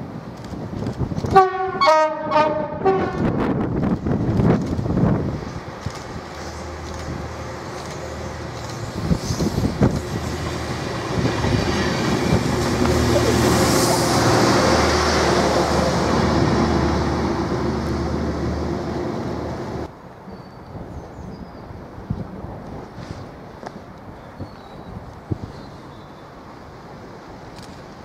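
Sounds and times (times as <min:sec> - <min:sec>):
train wheels on rails: 0:00.0 - 0:01.7, 0:02.6 - 0:19.9
diesel engine drone: 0:04.6 - 0:19.9.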